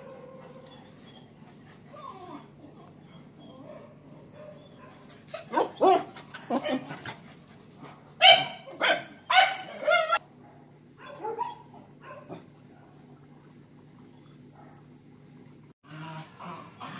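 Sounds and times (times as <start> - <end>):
faint steady hum: 0.0 - 16.9
dog barking: 3.6 - 6.8, 8.2 - 13.0.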